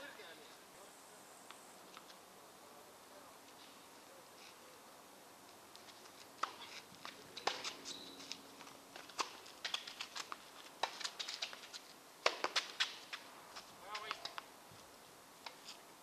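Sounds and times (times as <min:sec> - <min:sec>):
tennis ball bouncing on court: 0:06.4 - 0:08.0, 0:09.0 - 0:11.5, 0:12.2 - 0:13.2
tennis ball struck by rackets: 0:06.4 - 0:08.0, 0:10.8 - 0:11.5, 0:12.2 - 0:13.1.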